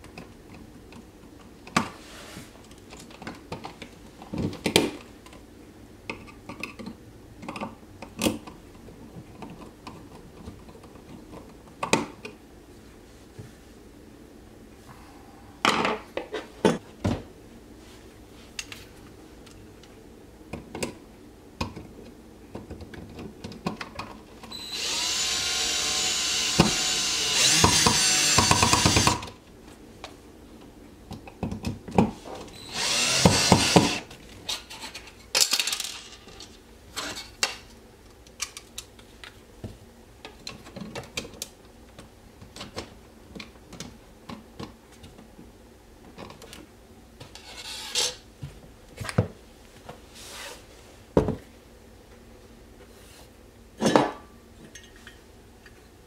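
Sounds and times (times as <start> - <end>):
power drill running: 24.5 - 29.3, 32.6 - 34.1.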